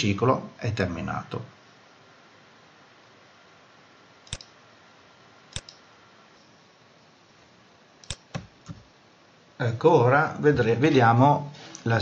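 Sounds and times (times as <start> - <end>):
faint background hiss: 0.0 - 12.0
computer mouse clicks: 4.2 - 4.6, 5.5 - 5.8, 8.0 - 8.8.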